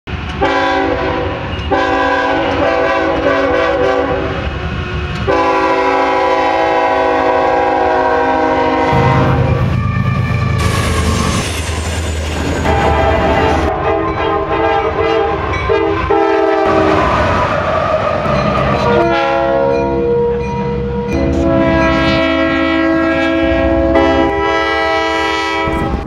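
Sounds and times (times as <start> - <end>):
locomotive air horn blasts: 0.4 - 4.4, 5.2 - 10.8, 12.6 - 17.0, 18.8 - 26.0
train cars clattering on rails: 8.9 - 22.3.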